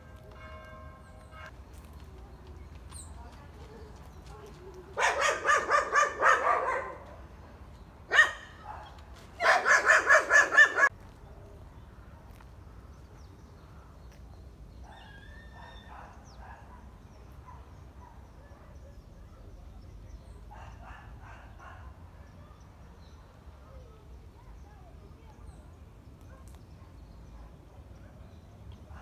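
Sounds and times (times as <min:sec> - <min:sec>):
dog barking: 0:05.0 - 0:07.2, 0:08.1 - 0:10.9, 0:20.5 - 0:22.0.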